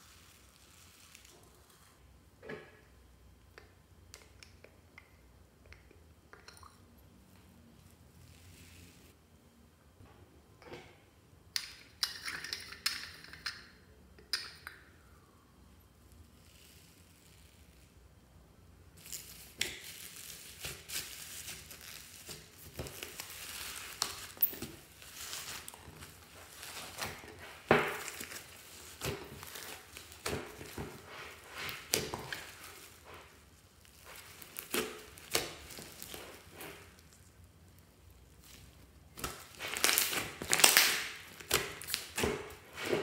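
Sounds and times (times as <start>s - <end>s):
slime crackling and popping: 0.0s - 1.9s, 19.0s - 43.0s.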